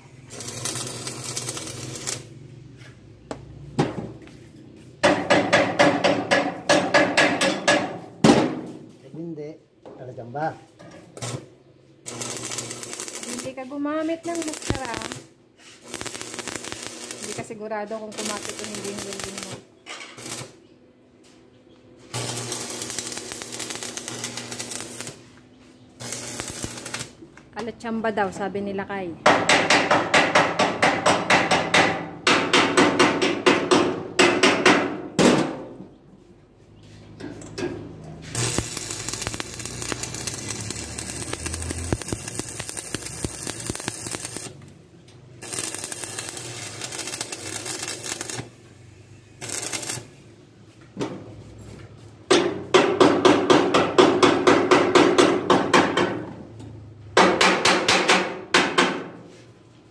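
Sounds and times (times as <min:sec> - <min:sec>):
hissing crackle: 0:14.2 - 0:17.5, 0:18.2 - 0:19.6, 0:22.1 - 0:25.2, 0:26.0 - 0:27.2, 0:38.3 - 0:44.6, 0:45.4 - 0:48.5, 0:49.4 - 0:50.1.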